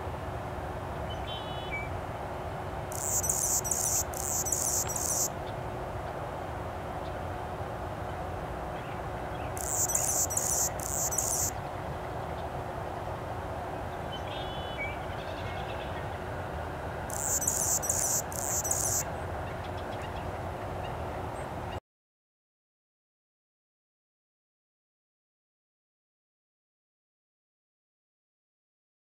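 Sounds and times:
hummingbird buzzy song: 2.9 - 5.3, 9.6 - 11.6, 17.1 - 19.0.

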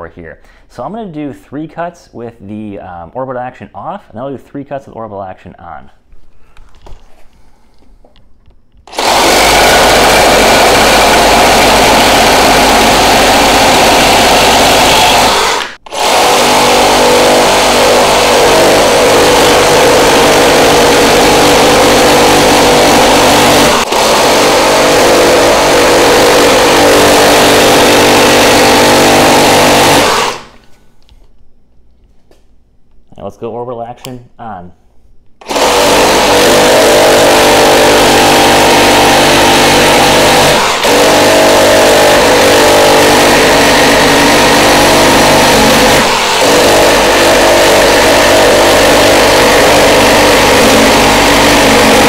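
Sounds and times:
reciprocating saw cutting wood: 8.9 - 30.6, 35.4 - 52.0.

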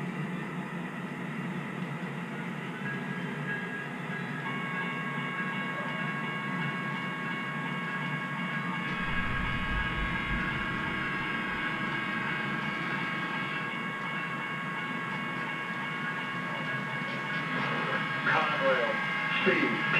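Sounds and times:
model train running: 0.0 - 19.9
high even tones: 8.9 - 12.0
low rumble: 8.9 - 12.3.

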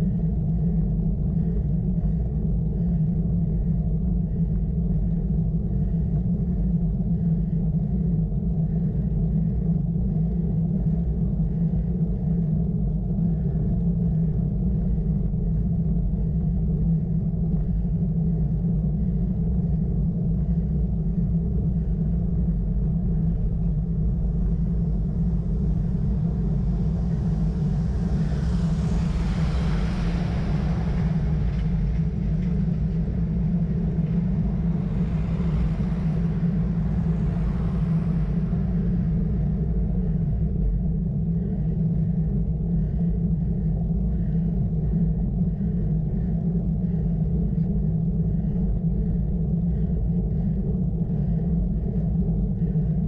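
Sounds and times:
wind buffeting microphone: 19.5 - 53.0.

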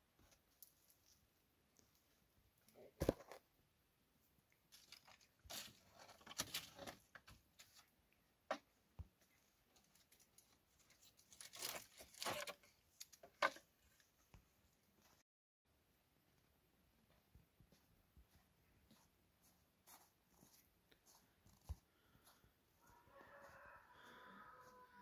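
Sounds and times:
sticks scraping and rustling: 4.7 - 7.9, 8.5 - 14.2.

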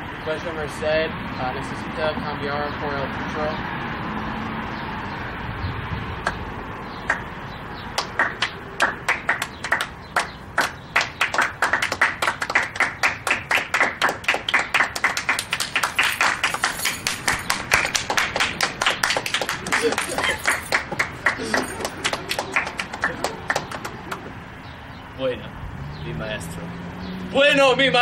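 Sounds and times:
group clapping: 7.1 - 7.3, 8.0 - 24.4.

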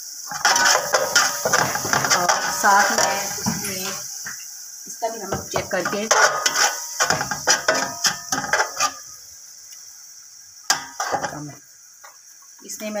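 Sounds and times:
paste sizzling in oil: 0.0 - 12.5
metal spatula scraping pot: 0.3 - 4.0, 5.6 - 9.1, 10.7 - 11.4
spatula knocking on pot: 5.3 - 6.0.

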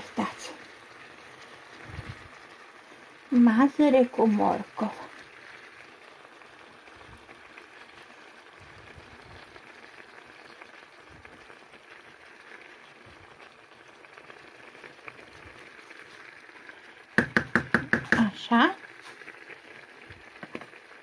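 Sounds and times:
food simmering with bubbling: 0.0 - 21.0
wooden spoon stirring: 17.2 - 18.4.

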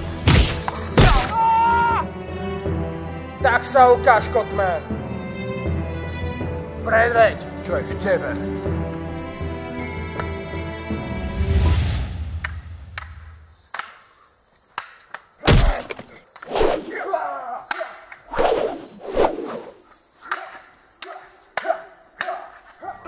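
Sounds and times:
wooden staffs striking: 0.1 - 1.4, 17.6 - 18.2, 20.3 - 22.5.

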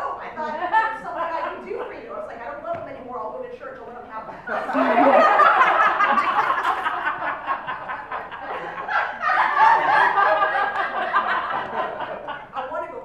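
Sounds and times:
audience laughing: 4.5 - 12.8.

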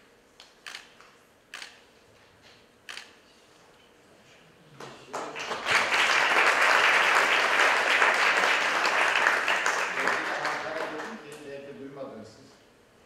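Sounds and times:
audience applause: 5.0 - 11.2.

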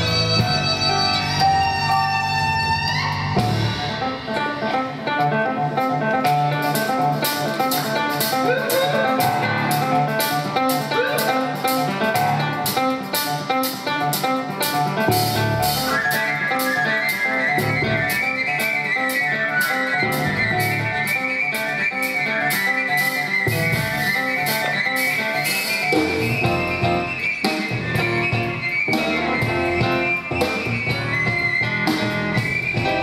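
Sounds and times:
grand piano playing: 0.0 - 22.4, 23.5 - 33.0
high held wind instrument: 0.0 - 33.0
steady cymbal beat: 6.3 - 16.7.

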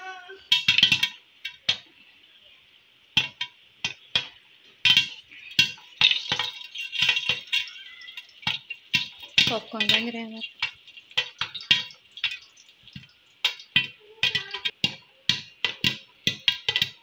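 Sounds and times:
popcorn popping: 0.0 - 1.9, 3.1 - 17.0
oil sizzling: 0.0 - 17.0.

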